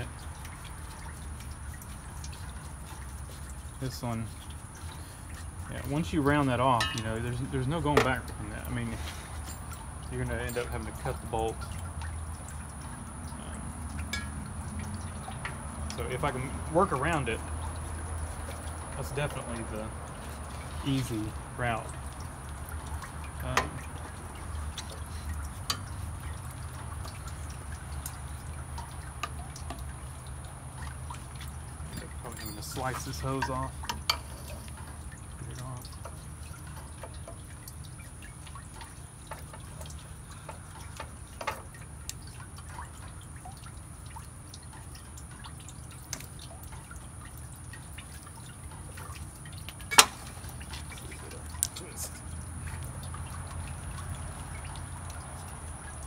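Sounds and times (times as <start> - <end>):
coolant dripping: 0.0 - 56.0
tools and metal parts clicking: 31.9 - 34.8.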